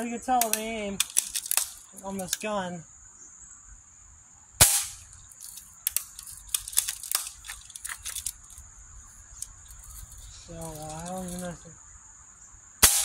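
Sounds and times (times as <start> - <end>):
bb gun firing crack: 0.4 - 1.8, 4.6 - 5.1
light clicks: 0.4 - 2.4.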